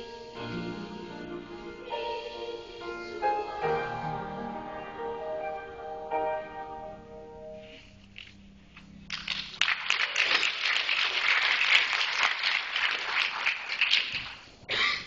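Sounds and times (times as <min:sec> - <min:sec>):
audience applauding: 0:09.1 - 0:14.5.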